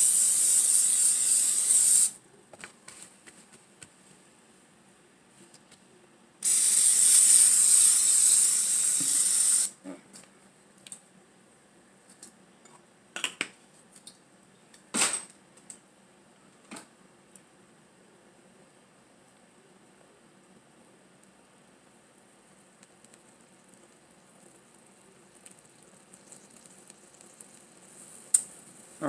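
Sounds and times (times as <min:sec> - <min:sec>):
aerosol spray can hissing: 0:00.0 - 0:02.2, 0:06.4 - 0:09.8.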